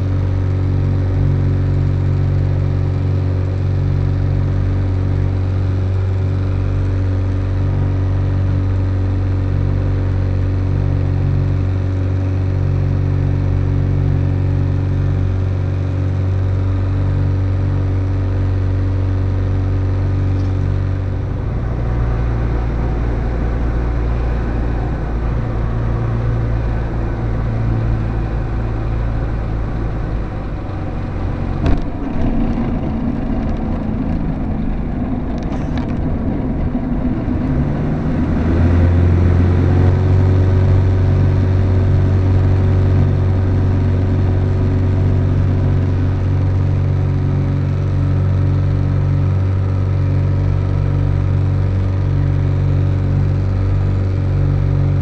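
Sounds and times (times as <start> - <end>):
light aircraft engine and propeller: 0.0 - 55.0
wheels rumbling on runway: 0.0 - 55.0
wheels thumping down: 31.5 - 36.1.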